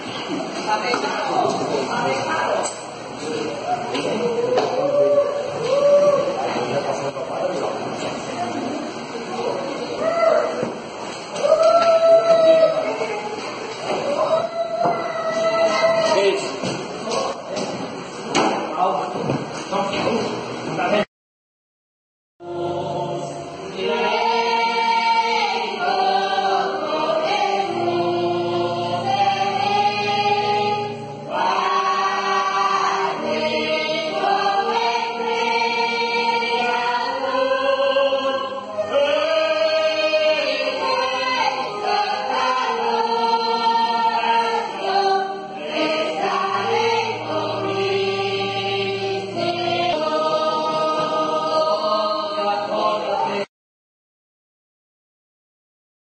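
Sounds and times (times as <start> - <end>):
keyboard accompaniment: 22.4 - 53.4
congregation singing a hymn: 22.4 - 53.5.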